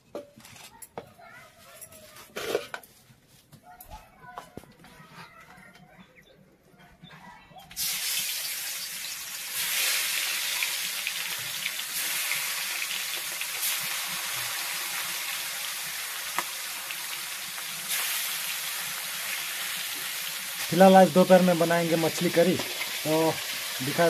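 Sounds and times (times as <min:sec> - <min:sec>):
fish sizzling in hot oil: 0:07.8 - 0:24.0.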